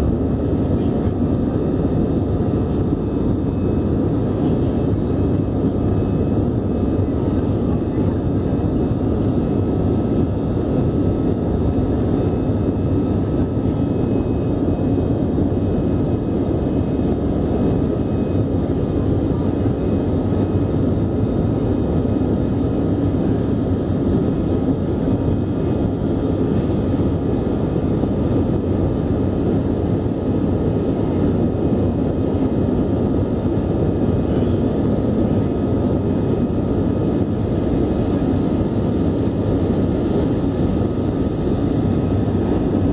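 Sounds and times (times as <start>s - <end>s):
airliner cabin engine rumble: 0.0s - 42.9s
faint steady whine: 0.0s - 42.9s.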